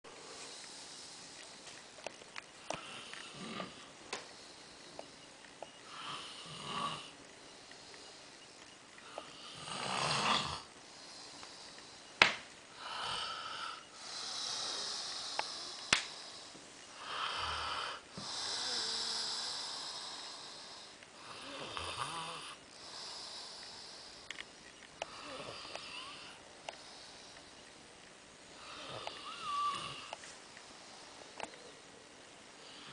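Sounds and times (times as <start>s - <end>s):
man snoring: 2.8s - 3.8s, 5.8s - 7.2s, 9.0s - 10.7s, 12.8s - 15.9s, 17.0s - 23.9s, 25.1s - 26.4s, 28.6s - 30.1s.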